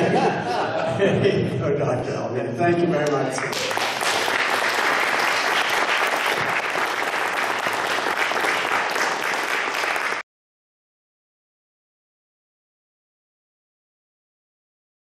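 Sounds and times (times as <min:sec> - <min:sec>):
audience applauding: 0:03.4 - 0:10.2.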